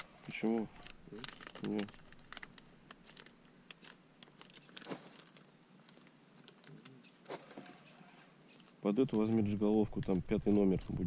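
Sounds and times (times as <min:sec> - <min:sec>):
faint high bird chirps: 0:06.7 - 0:08.7
fishing tackle clicking and rattling: 0:09.0 - 0:10.8.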